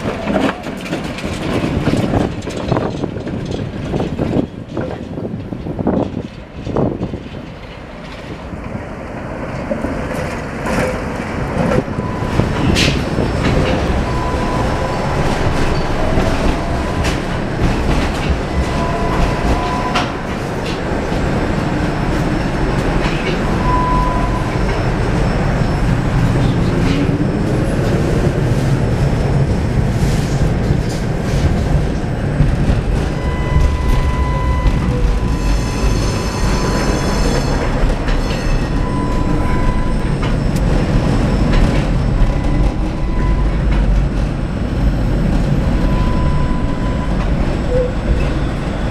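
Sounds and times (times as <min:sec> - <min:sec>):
tram wheels rumbling on rails: 0:00.0 - 0:48.9
wheels clacking over rail joints: 0:00.0 - 0:48.9.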